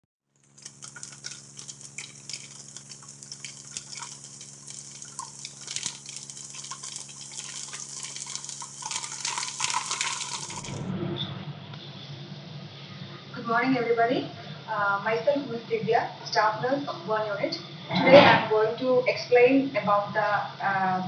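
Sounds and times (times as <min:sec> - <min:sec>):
crackling fizzing hiss: 0:00.4 - 0:10.8
steady low hum: 0:00.4 - 0:21.0
dull room noise: 0:00.5 - 0:21.0.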